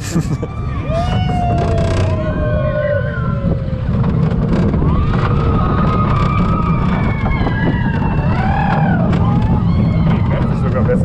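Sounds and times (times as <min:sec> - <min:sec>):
roller coaster rumbling on track: 0:00.0 - 0:11.0
wind buffeting microphone: 0:00.2 - 0:11.0.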